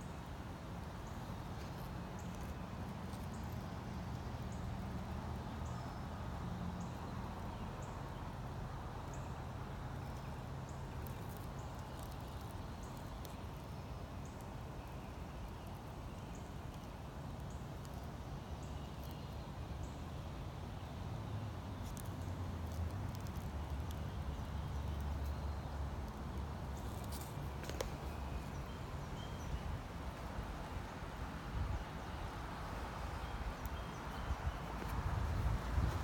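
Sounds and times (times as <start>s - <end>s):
low rumble on microphone: 33.2s - 36.0s.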